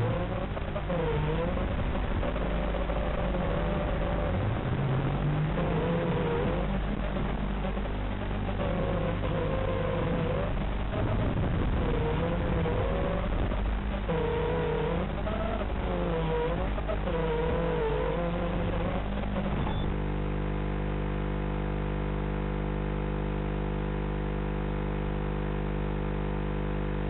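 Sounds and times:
video link hiss and crackle: 0:00.0 - 0:19.7
steady electrical buzz: 0:00.0 - 0:27.0.

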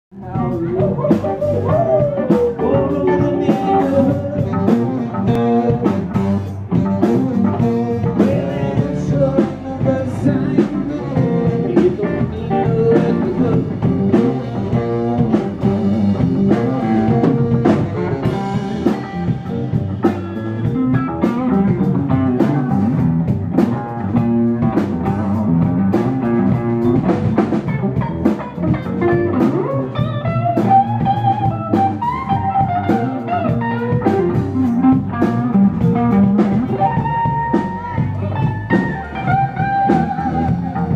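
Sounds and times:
blues band playing: 0:00.1 - 0:40.9
lead guitar line sliding: 0:00.2 - 0:40.9.

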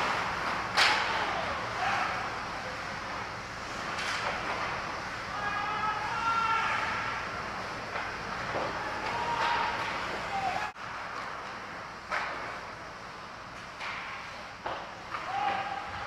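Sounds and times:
sharp cracks of hockey play: 0:00.0 - 0:02.3, 0:03.7 - 0:07.3, 0:07.9 - 0:12.8, 0:13.6 - 0:16.0
rink and crowd noise: 0:00.0 - 0:16.0
people shouting: 0:00.8 - 0:02.4, 0:05.3 - 0:07.2, 0:08.6 - 0:10.8, 0:15.1 - 0:16.0.

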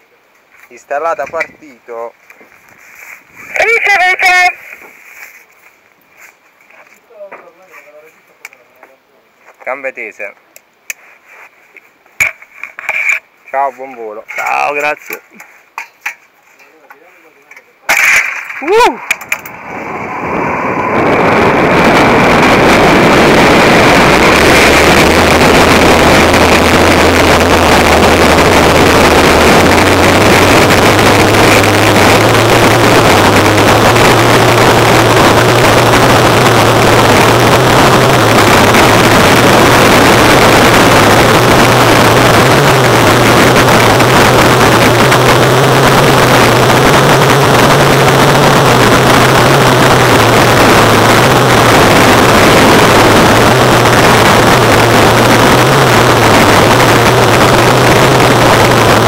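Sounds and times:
wind roaring over microphone: 0:00.8 - 0:01.9, 0:02.7 - 0:04.6, 0:18.4 - 0:59.0
low hum: 0:17.9 - 0:59.0.

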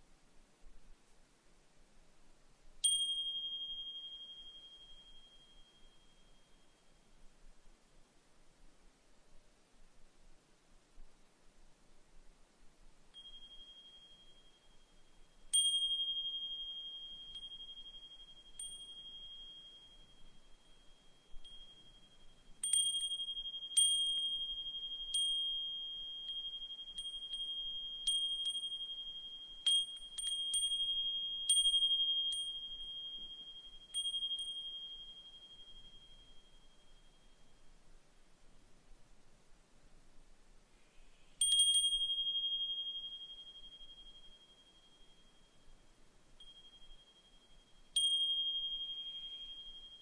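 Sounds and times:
wind chime ringing: 0:02.8 - 0:06.8, 0:13.2 - 0:37.6, 0:41.4 - 0:50.0.

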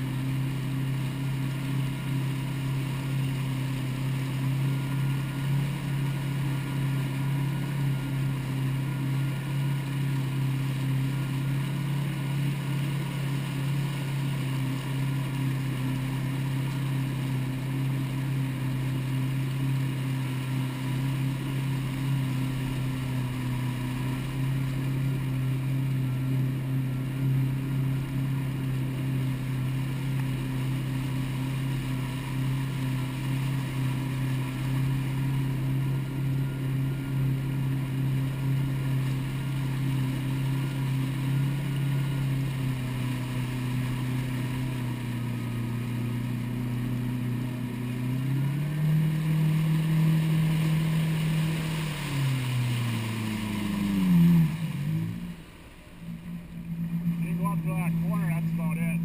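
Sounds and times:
jet ski engine droning: 0:00.0 - 0:59.0
water spraying along hull: 0:00.0 - 0:59.0.

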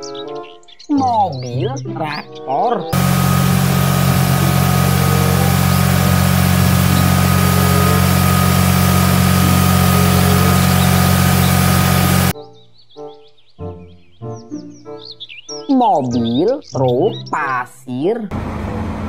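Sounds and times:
tractor diesel engine idling: 0:03.0 - 0:12.3, 0:18.3 - 0:19.0.

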